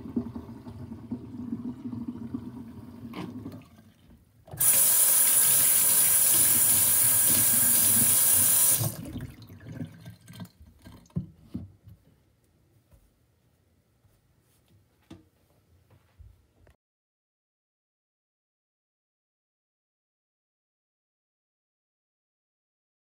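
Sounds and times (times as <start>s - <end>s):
water gurgling down a sink drain: 0.0s - 11.4s
faucet water spraying into sink: 4.5s - 9.1s.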